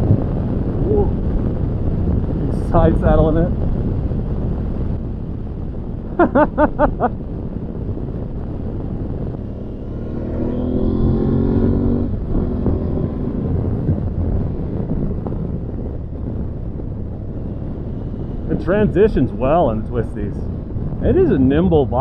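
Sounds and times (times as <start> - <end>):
wind and road noise: 0.0 - 22.0
motorcycle engine accelerating: 5.4 - 22.0.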